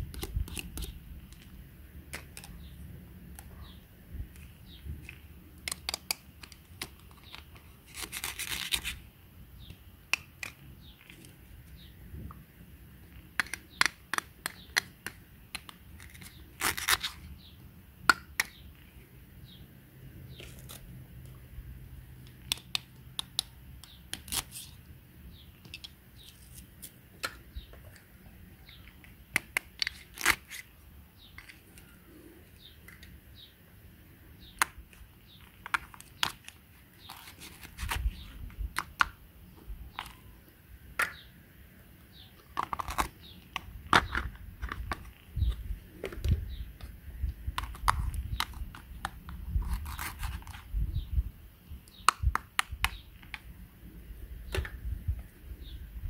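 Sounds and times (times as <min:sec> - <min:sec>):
velcro ripping: 0:07.9 - 0:09.0, 0:16.1 - 0:17.3.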